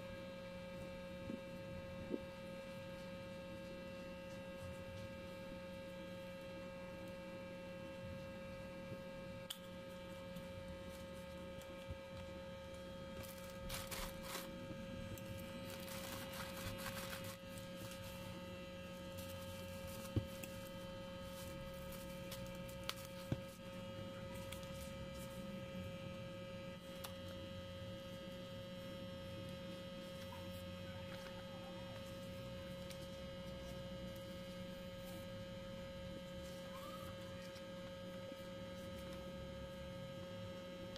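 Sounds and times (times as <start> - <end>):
electrical hum with whine: 0.0 - 40.9
paper and plastic packaging rustling: 13.1 - 25.5.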